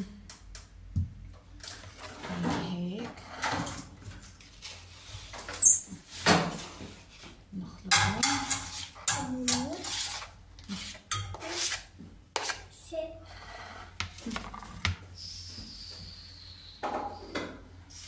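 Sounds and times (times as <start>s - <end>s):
knife scraping cutting board: 9.6s - 12.7s.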